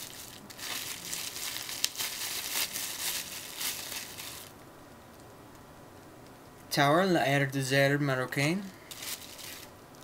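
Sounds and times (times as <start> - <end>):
packaging crinkling: 0.0 - 4.6, 8.9 - 9.7.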